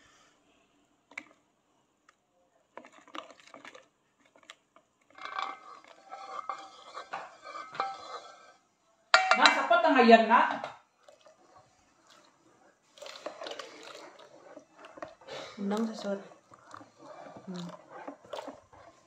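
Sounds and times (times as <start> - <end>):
whisk beating batter in plastic bowl: 2.8 - 8.6, 10.9 - 19.0.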